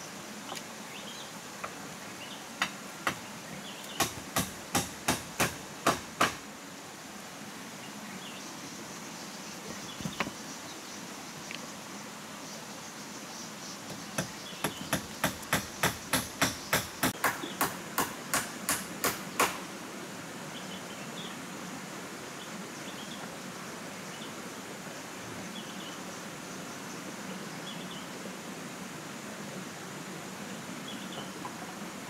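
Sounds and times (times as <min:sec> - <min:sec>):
tool knocking sharply: 0:04.0 - 0:06.4.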